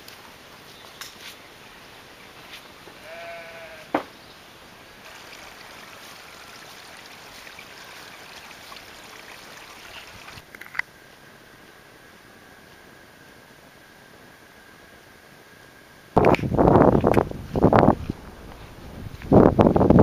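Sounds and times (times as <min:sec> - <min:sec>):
sheep bleating: 0:03.0 - 0:04.0.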